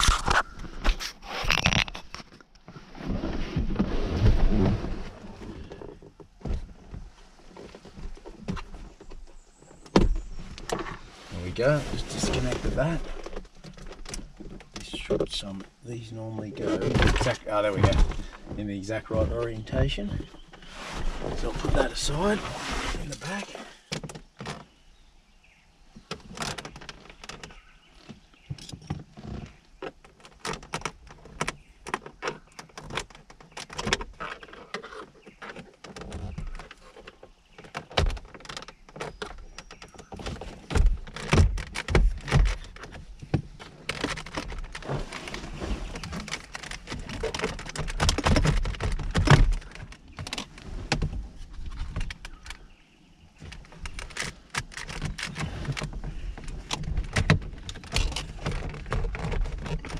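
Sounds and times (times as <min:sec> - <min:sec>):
plastic clicks knocks and rattles: 0:26.0 - 0:44.9, 0:46.0 - 0:52.7, 0:53.4 - 0:59.9.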